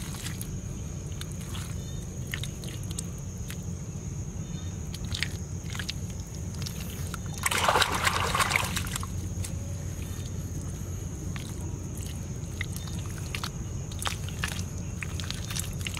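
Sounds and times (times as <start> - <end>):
muddy water sloshing: 0.0 - 15.9
hands slapping wet mud: 4.9 - 9.6, 11.3 - 15.9.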